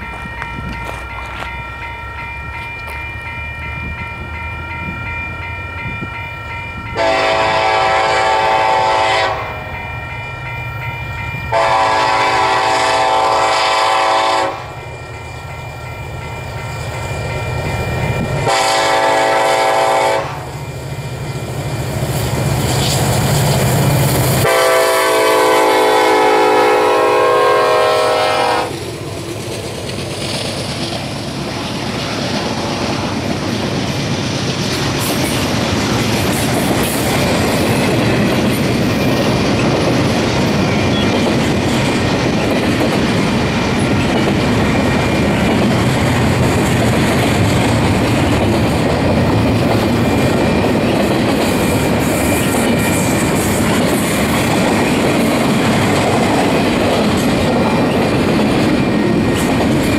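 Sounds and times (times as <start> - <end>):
train horn blowing: 7.0 - 9.8, 11.5 - 14.8, 18.4 - 20.5, 24.4 - 28.8
diesel locomotive rumble: 16.1 - 59.9
freight cars rolling on rails: 28.7 - 59.9.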